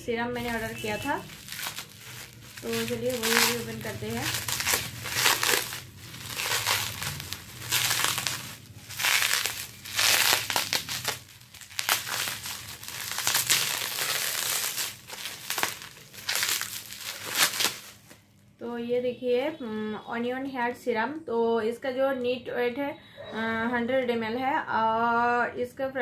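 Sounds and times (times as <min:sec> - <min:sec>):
bubble wrap crinkling: 0:00.4 - 0:18.5.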